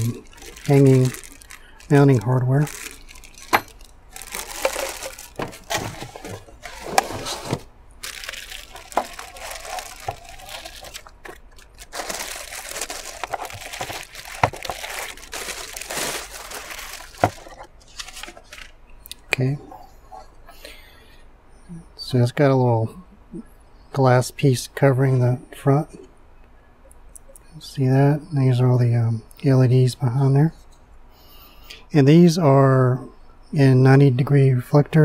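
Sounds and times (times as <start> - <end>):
plastic wrapping crinkling: 0.0 - 18.8.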